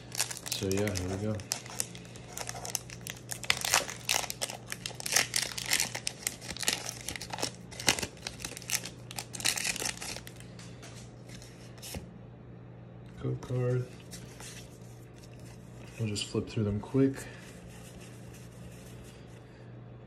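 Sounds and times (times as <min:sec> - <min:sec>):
foil wrapper crinkling and tearing: 0:00.0 - 0:10.5.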